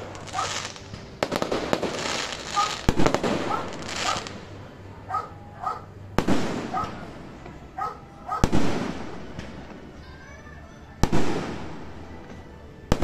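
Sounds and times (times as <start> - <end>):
firework shells booming: 0.0 - 4.5, 6.2 - 7.5, 8.4 - 9.8
firework crackle: 0.0 - 4.7, 6.1 - 7.2, 8.4 - 9.9, 11.0 - 12.2
dog barking: 0.3 - 0.6, 2.6 - 2.8, 3.5 - 4.3, 5.1 - 5.9, 6.7 - 7.1, 7.8 - 8.5.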